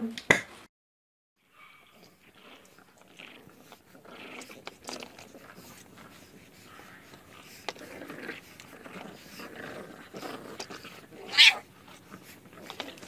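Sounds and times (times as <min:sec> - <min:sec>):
soft noisy sounds: 0:01.4 - 0:13.0
puppy yelping: 0:04.2 - 0:13.0.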